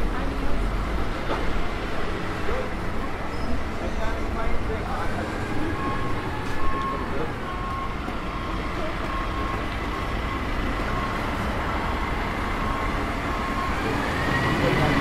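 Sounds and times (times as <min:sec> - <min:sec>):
traffic rumble: 0:00.0 - 0:15.0
truck diesel engine passing: 0:00.0 - 0:15.0.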